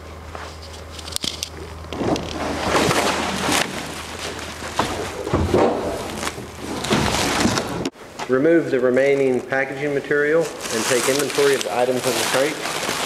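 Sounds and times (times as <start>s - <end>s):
wood scraping: 0.4s - 8.0s, 10.4s - 13.0s.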